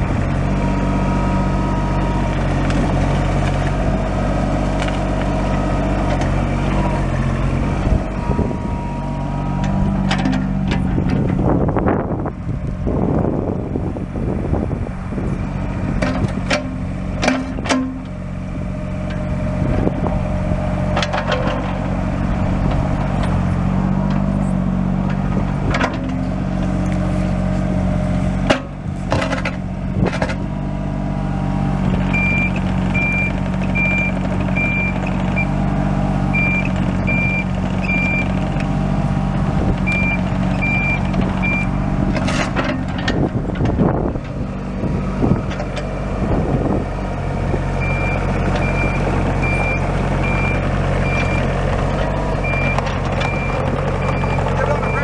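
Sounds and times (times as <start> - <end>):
diesel engine running: 0.0 - 55.0
travel alarm beeping: 52.5 - 55.0.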